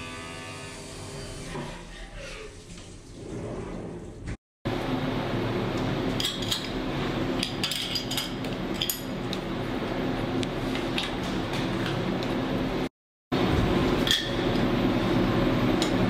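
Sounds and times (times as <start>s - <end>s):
steady machine hum: 4.7s - 16.0s.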